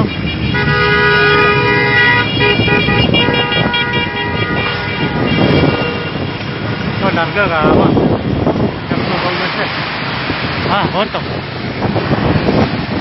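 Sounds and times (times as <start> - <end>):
vehicle horns honking: 0.0 - 6.7
traffic noise: 0.0 - 13.0.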